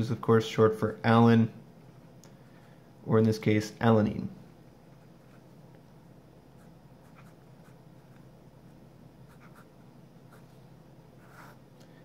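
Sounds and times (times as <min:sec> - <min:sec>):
low steady hum: 0:00.0 - 0:12.0
pen scratching on paper: 0:06.6 - 0:08.2, 0:09.3 - 0:10.5, 0:11.2 - 0:11.6.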